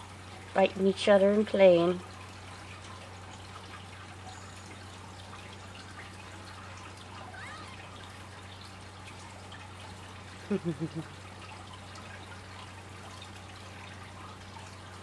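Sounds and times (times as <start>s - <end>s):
room heater hiss and hum: 0.0s - 15.0s
faint short squeak: 7.3s - 8.0s.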